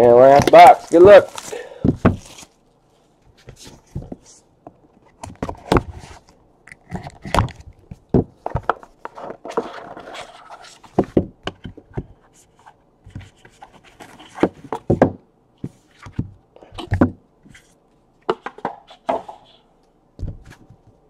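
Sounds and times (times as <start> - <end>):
cardboard scraping rustle: 9.0 - 11.0.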